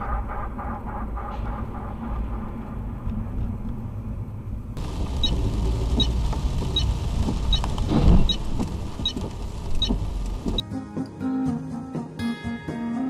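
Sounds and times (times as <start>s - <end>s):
car engine and tyres rumbling: 0.0s - 10.6s
small repeating tick: 5.2s - 10.6s
thump: 7.9s - 8.4s.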